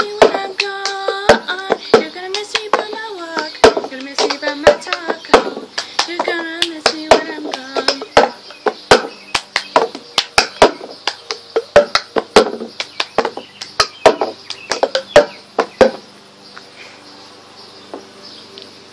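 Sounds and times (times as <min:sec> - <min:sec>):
hand claps: 0:09.3 - 0:11.4, 0:12.8 - 0:15.7
cup tapping and knocking: 0:11.6 - 0:16.0.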